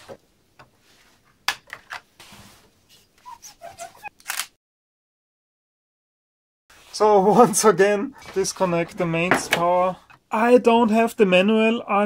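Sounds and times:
camera being handled: 4.2s - 4.5s.

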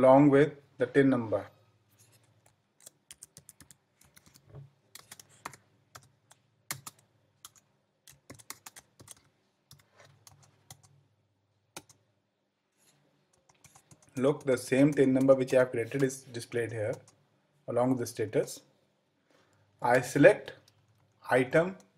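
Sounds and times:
computer keyboard typing: 2.4s - 11.0s, 11.7s - 12.0s, 13.3s - 17.2s.

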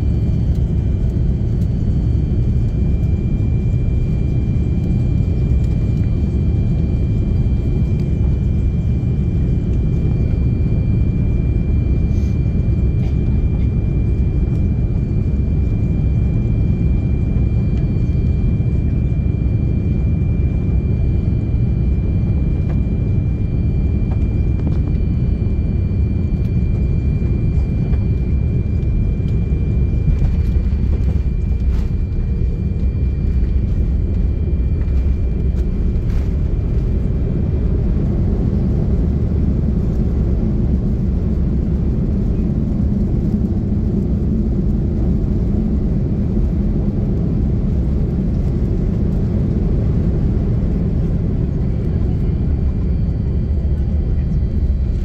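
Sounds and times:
airliner cabin engine rumble: 0.0s - 55.0s
faint high whine: 0.0s - 55.0s.

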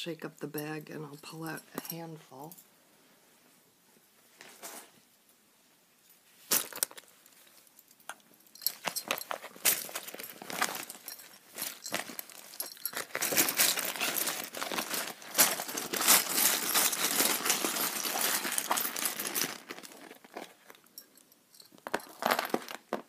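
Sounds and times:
bag of charms rattling: 6.5s - 7.1s, 8.6s - 22.9s.

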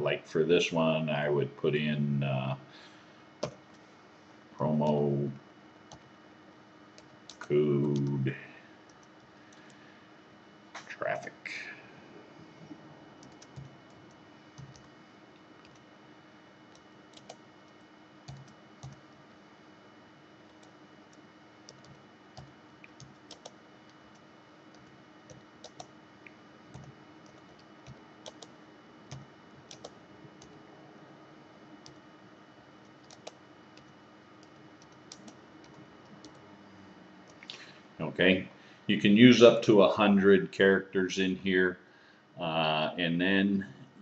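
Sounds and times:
faint keyboard typing: 3.4s - 3.9s, 4.8s - 5.1s, 5.9s - 6.1s, 6.9s - 9.8s, 12.6s - 15.9s, 16.7s - 19.1s, 20.4s - 30.6s, 31.8s - 32.0s, 32.8s - 36.4s.

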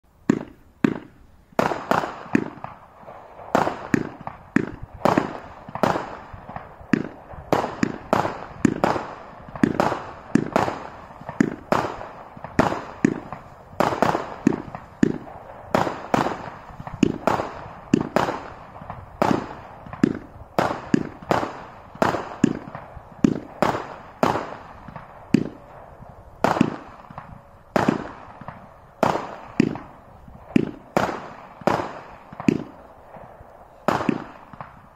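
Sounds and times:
firework bangs with echo: 0.2s - 34.9s.

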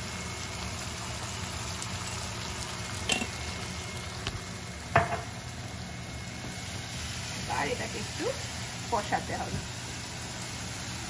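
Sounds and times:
food sizzling in a wok: 0.0s - 11.0s.

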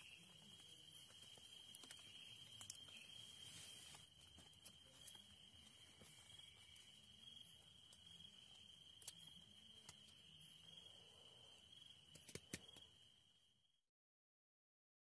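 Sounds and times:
insects trilling: 0.0s - 13.5s
insect chirps: 0.0s - 13.8s.

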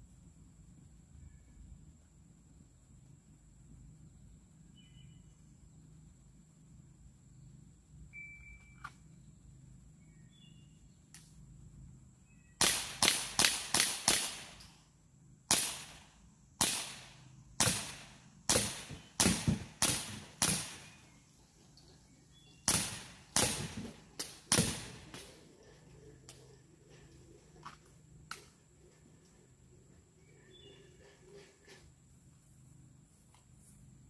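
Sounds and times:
air pistol shots cracking: 12.6s - 14.7s, 15.5s - 21.1s, 22.6s - 25.4s.

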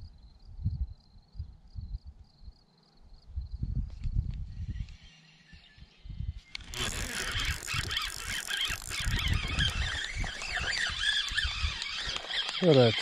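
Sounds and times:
fishing reel buzzing and squealing: 6.4s - 13.0s
fine rapid clicking: 6.6s - 13.0s.

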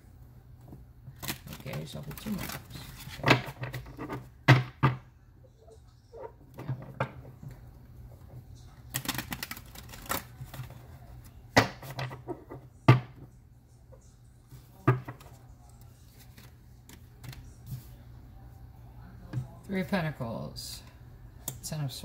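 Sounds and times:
cards rustling: 1.1s - 4.2s, 8.6s - 11.4s, 15.2s - 18.0s.

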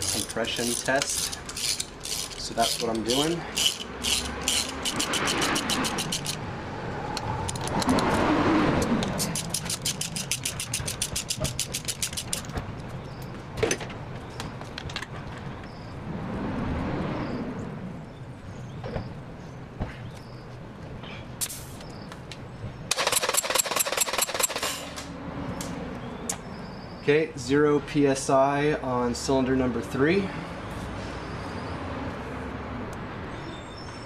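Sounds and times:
ratchet wrench clicking: 0.0s - 6.4s, 9.0s - 12.5s, 22.9s - 24.9s
tool clicks: 3.6s - 6.4s, 22.9s - 25.1s.

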